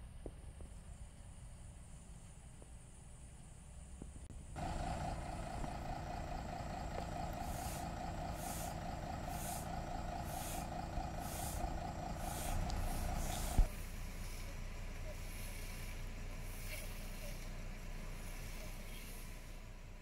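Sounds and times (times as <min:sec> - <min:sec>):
fire engine droning: 0:04.4 - 0:20.0
short hissing bursts: 0:07.4 - 0:14.5, 0:15.1 - 0:17.5, 0:18.1 - 0:19.7.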